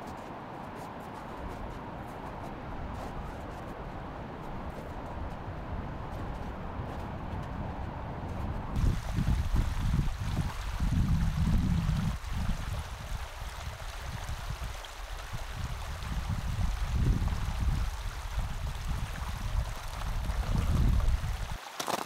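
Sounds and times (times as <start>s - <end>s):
wind buffeting microphone: 2.6s - 21.6s
running water rushing: 8.8s - 22.0s.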